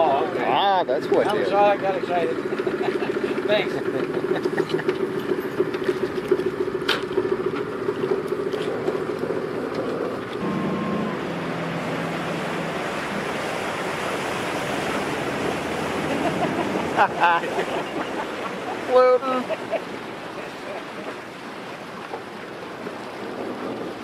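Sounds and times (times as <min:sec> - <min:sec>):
boat engine humming: 0:00.0 - 0:24.0
water noise: 0:00.0 - 0:24.0
wind: 0:00.0 - 0:24.0
low steady drone: 0:10.4 - 0:19.5.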